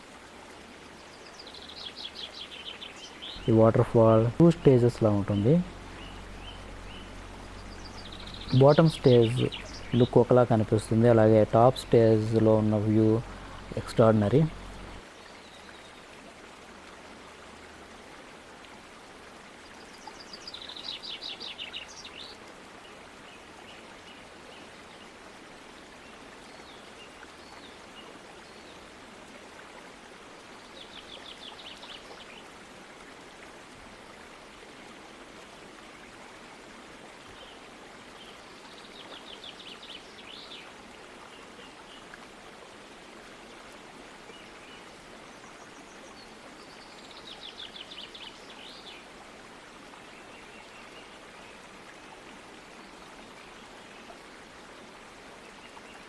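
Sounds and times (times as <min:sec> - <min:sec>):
waterfall rushing: 0:01.6 - 0:15.1
bird singing rapid high notes: 0:03.2 - 0:15.0.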